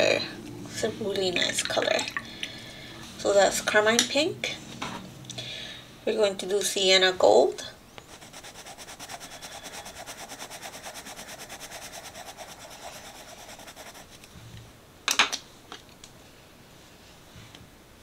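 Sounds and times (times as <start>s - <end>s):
pencil scratching on paper: 8.0s - 14.2s.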